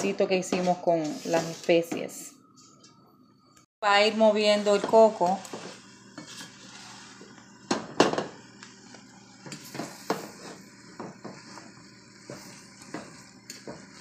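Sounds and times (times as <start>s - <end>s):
wooden spatula scraping metal pan: 0.0s - 2.1s, 4.4s - 7.3s.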